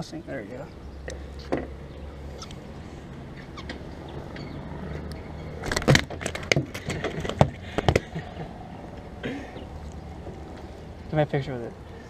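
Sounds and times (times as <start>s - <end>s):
fish flopping on wooden boards: 5.5s - 8.5s.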